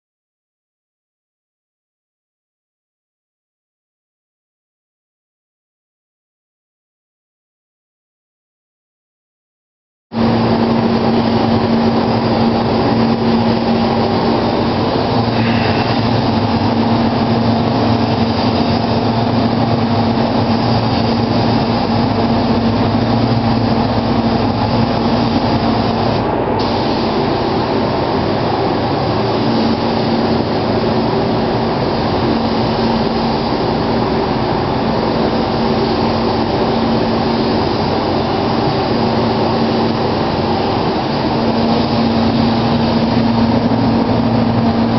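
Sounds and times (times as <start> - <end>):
spray gun hissing: 10.2 - 44.9
ventilation fan hum: 10.2 - 44.9.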